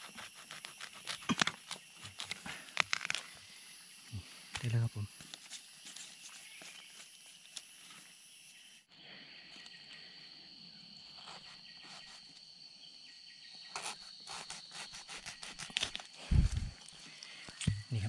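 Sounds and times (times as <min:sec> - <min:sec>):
insects trilling: 0:00.0 - 0:18.0
sharp crackles and snaps: 0:00.1 - 0:03.4.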